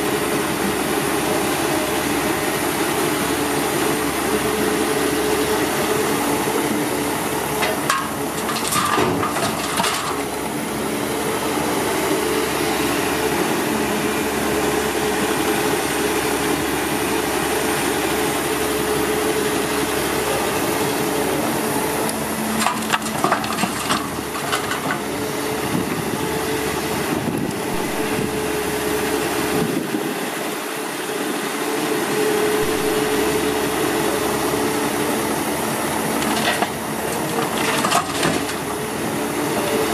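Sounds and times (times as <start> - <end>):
heavy engine running: 0.0 - 39.9
clattering and knocking: 7.6 - 10.2, 22.6 - 25.0, 36.2 - 38.6.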